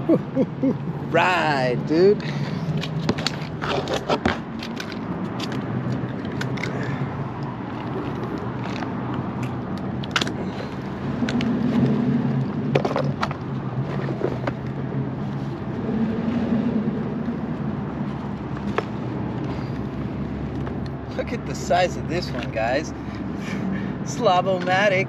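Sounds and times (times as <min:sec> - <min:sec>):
vehicle passing: 0:00.0 - 0:24.5
road traffic hum: 0:00.0 - 0:25.0.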